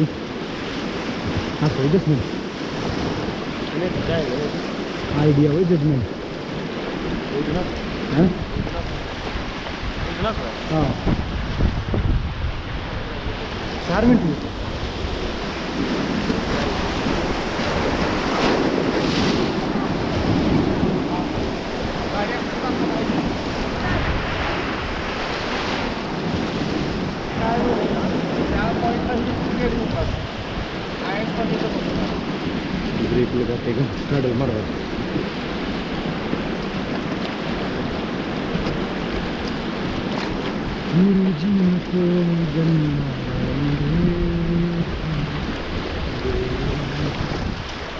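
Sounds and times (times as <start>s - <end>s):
river rapids rushing: 0.0s - 11.9s, 12.5s - 47.9s
wind buffeting microphone: 0.0s - 47.9s
person's wavering voice: 40.9s - 47.3s.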